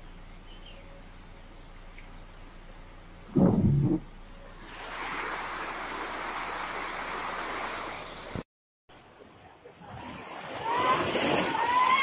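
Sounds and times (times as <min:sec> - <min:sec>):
quiet watery noise: 0:00.0 - 0:12.0
floodwater rushing: 0:03.3 - 0:08.4, 0:09.0 - 0:12.0.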